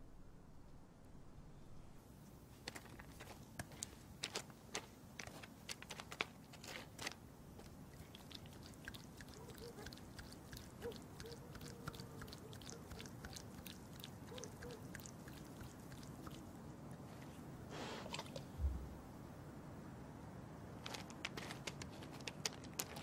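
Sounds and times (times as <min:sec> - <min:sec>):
low thump: 0:18.6 - 0:19.0.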